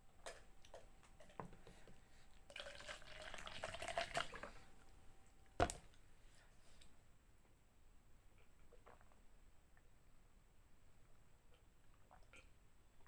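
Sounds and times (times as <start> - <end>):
tea pouring into plastic cup: 2.5 - 4.6.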